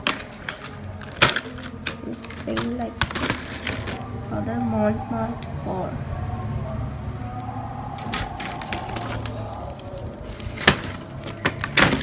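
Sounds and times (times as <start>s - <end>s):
plastic packaging clicks and crinkles: 0.0s - 4.0s, 8.0s - 12.0s.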